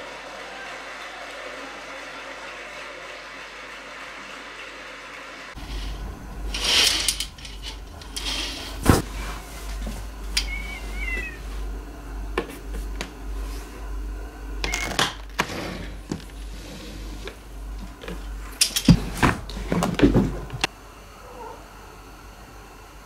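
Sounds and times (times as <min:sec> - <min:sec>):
cat meowing: 0:10.4 - 0:11.4.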